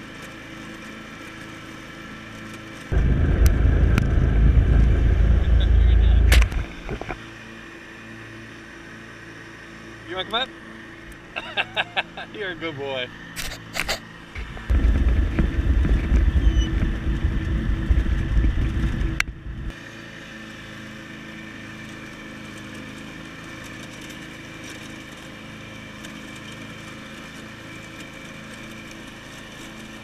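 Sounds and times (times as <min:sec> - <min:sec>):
lawn tractor engine drone: 0:00.0 - 0:30.0
loud uneven low rumble: 0:02.9 - 0:07.2, 0:14.4 - 0:19.7.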